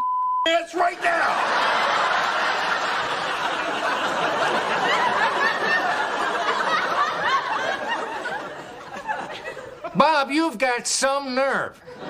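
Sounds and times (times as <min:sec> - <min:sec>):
studio audience laughing: 0:00.8 - 0:10.1, 0:11.8 - 0:12.0.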